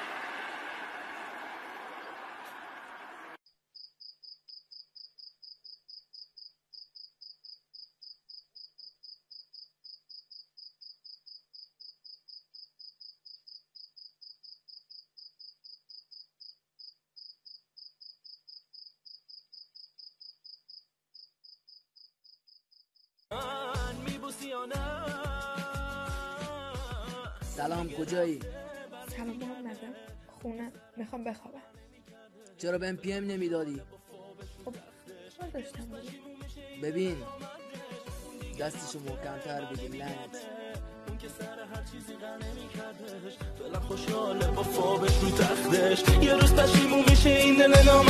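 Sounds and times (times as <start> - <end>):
cricket chirping: 3.7 - 23.2
loud music: 23.3 - 28.1, 35.5 - 48.0.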